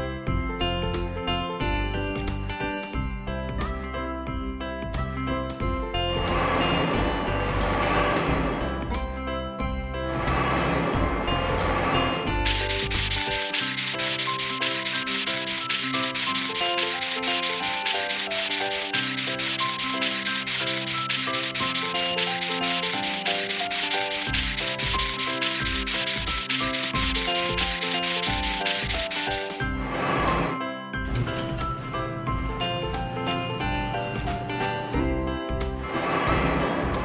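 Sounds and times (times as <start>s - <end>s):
simple background tune: 0.0s - 37.0s
cartoon brush scrubbing: 11.8s - 29.7s.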